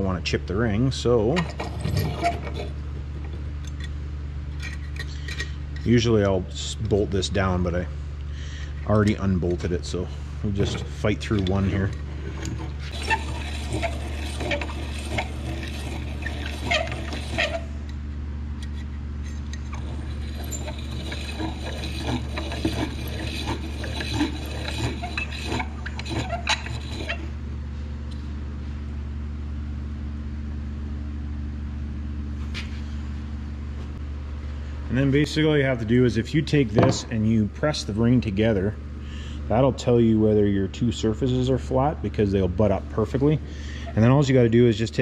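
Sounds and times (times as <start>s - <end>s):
steady low hum: 0.0s - 45.0s
file rasping on metal: 1.5s - 2.8s, 12.4s - 17.8s, 19.7s - 27.3s.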